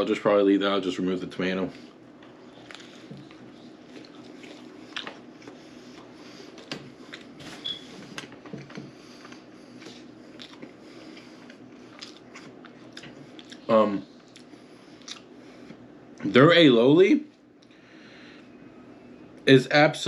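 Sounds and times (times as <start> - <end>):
squishy eating noises: 2.1 - 7.7, 8.6 - 15.9.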